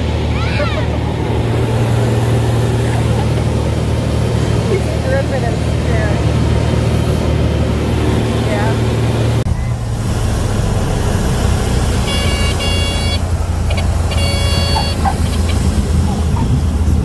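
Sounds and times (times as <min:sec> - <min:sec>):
propeller airplane engine running: 0:00.0 - 0:17.0
cockpit warning horn chirps: 0:12.0 - 0:15.6.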